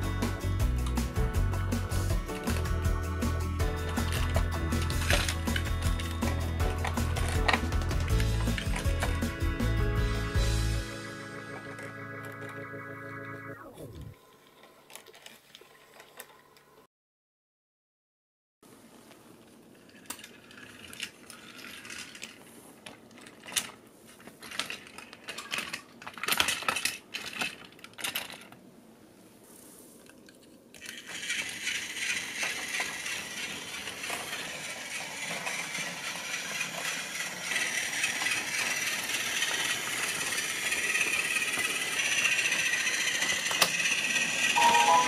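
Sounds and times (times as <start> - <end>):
toy train rattling whir: 1.8 - 9.7, 19.6 - 28.6, 30.0 - 45.0
plastic toy trains clattering: 3.9 - 9.3, 19.6 - 28.6, 30.0 - 45.0.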